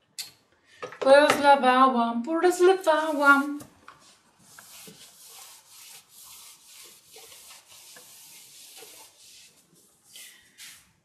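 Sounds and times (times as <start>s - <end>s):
quick swishing strokes in liquid: 4.4s - 11.0s.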